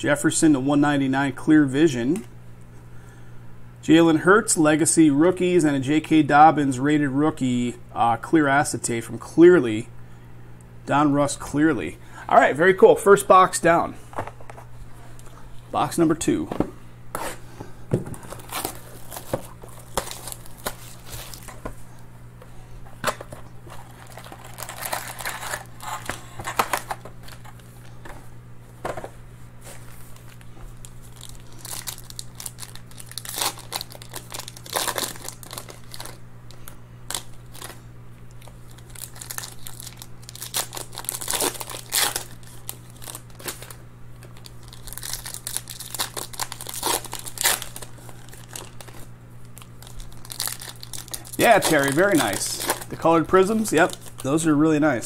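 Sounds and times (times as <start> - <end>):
steady low hum: 0.0 - 55.0
plastic wrap crumpling: 18.2 - 21.6, 23.1 - 28.0, 29.7 - 54.5
foil wrappers crinkling and tearing: 18.2 - 21.7, 23.1 - 28.0, 29.7 - 54.5.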